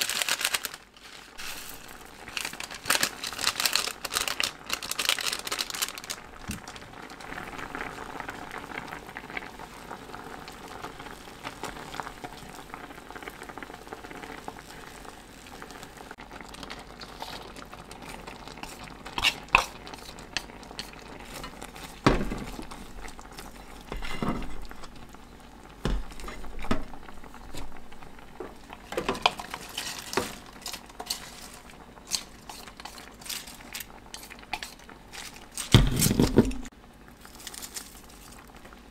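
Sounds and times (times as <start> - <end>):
sauce bubbling in a pan: 5.4 - 35.9, 36.7 - 38.9
vegetables clattering into pan: 19.1 - 23.1, 23.8 - 25.0, 25.8 - 38.5.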